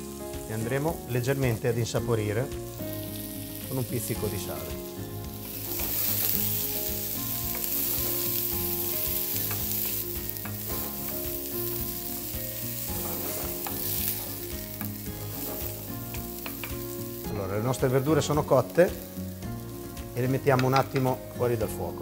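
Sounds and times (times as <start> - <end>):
vegetables sizzling in a frying pan: 0.0 - 22.0
spoon scraping a pan: 5.4 - 6.7, 7.5 - 11.9, 12.7 - 17.0.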